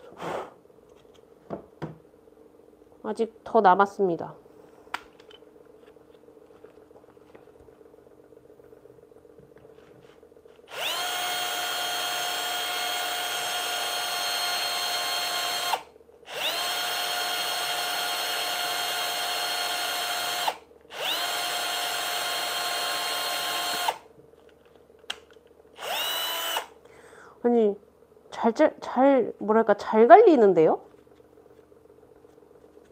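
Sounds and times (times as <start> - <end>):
cordless drill boring into resin: 10.7 - 24.0, 25.8 - 26.7.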